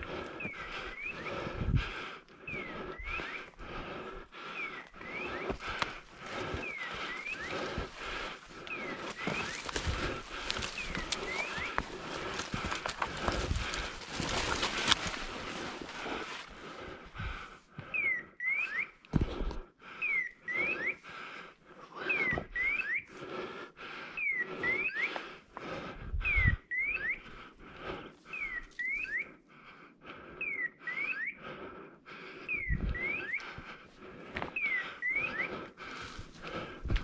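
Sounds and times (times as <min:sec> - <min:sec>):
footsteps crunching through brush: 0:05.1 - 0:16.6.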